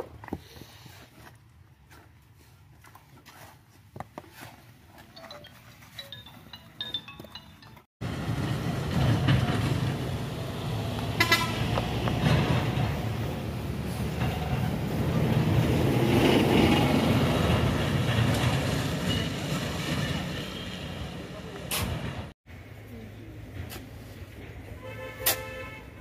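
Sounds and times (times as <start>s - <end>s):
truck engine passing: 8.0s - 22.3s
vehicle horn toot: 11.2s - 11.7s, 24.8s - 26.0s.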